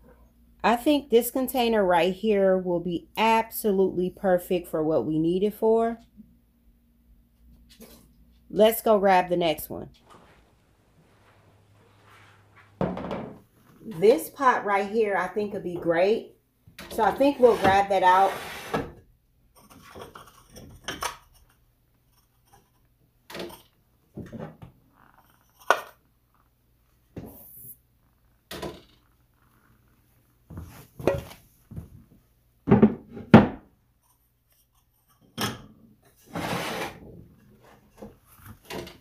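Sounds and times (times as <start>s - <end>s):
pot scraping: 10.0s - 12.9s, 16.9s - 19.0s, 36.1s - 38.6s.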